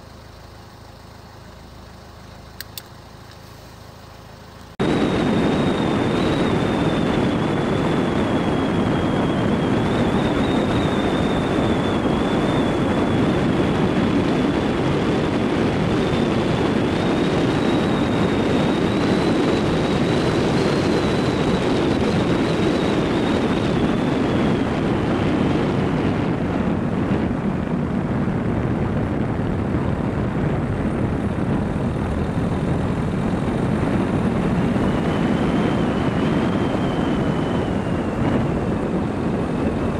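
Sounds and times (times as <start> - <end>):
car engine tyre and wind noise: 0.0 - 39.9.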